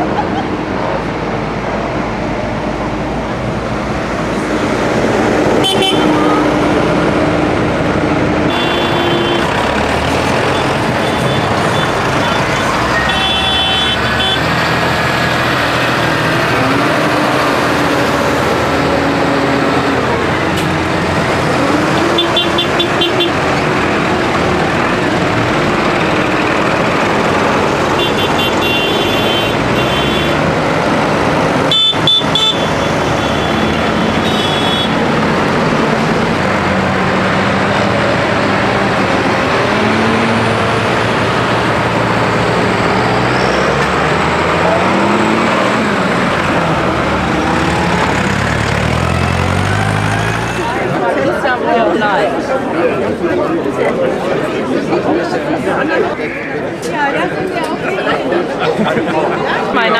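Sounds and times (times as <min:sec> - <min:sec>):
tractor diesel engines running: 0:00.0 - 0:59.9
horn toots: 0:05.6 - 0:06.5, 0:08.5 - 0:14.5, 0:21.6 - 0:23.4, 0:28.0 - 0:30.4, 0:31.7 - 0:35.0.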